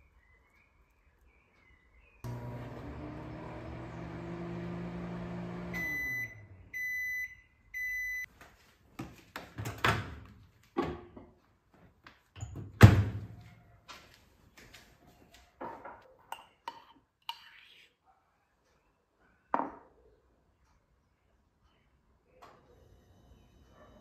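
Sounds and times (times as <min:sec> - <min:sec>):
microwave oven humming: 0:02.3 - 0:07.0
microwave beeps: 0:02.3 - 0:08.3.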